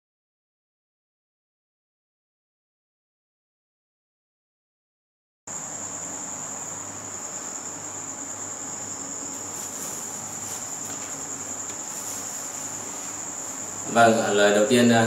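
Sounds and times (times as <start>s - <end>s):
insects trilling: 5.5s - 15.0s
soft rustles: 9.3s - 13.8s.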